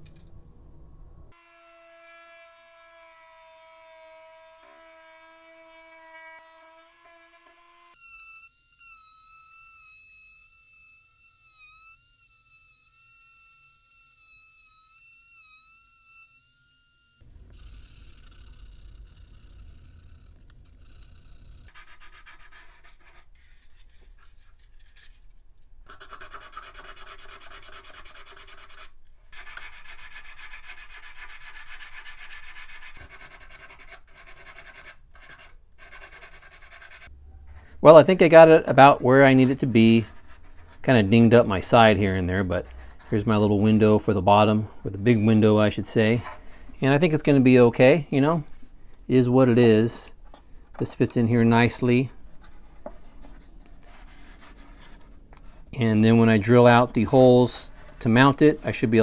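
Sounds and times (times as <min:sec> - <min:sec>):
rotary tool whining: 0:04.1 - 0:26.0, 0:36.8 - 0:59.0
hand file scraping wood: 0:05.8 - 0:37.1, 0:37.7 - 0:47.7, 0:50.2 - 0:59.0.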